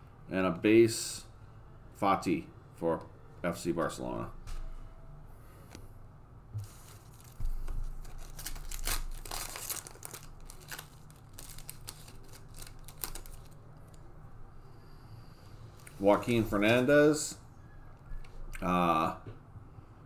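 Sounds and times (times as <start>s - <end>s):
foil wrapper tearing and crinkling: 6.8s - 13.6s.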